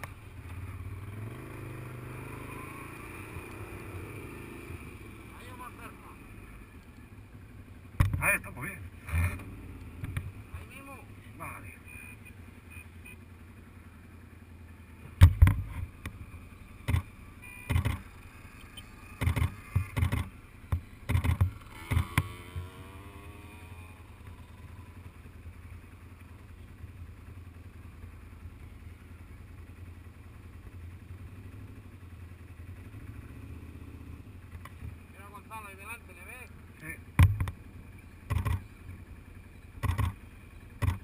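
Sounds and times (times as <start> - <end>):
quad bike engine running: 0.0 - 41.0
loud sharp knocks and thumps: 19.2 - 22.3, 39.8 - 40.2.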